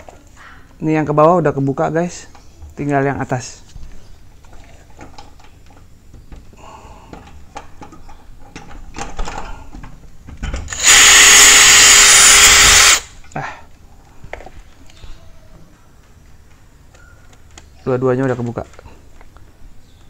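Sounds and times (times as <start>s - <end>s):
cordless drill drilling metal: 10.7s - 13.1s.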